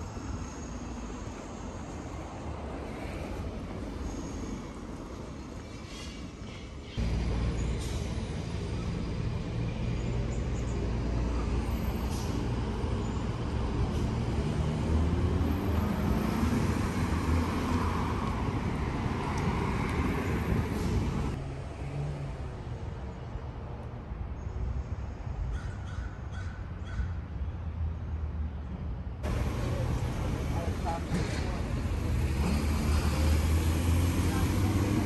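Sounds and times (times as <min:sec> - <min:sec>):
large vehicle engine running: 0:29.2 - 0:35.0.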